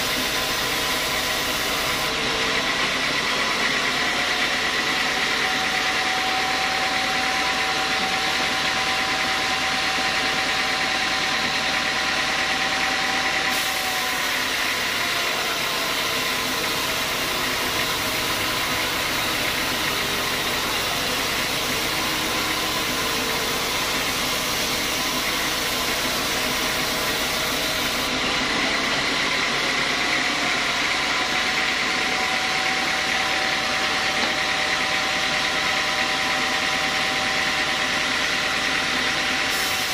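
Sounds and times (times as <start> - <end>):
saw blade cutting through log: 0.0 - 2.8, 9.0 - 30.1
band saw whining: 0.0 - 39.9.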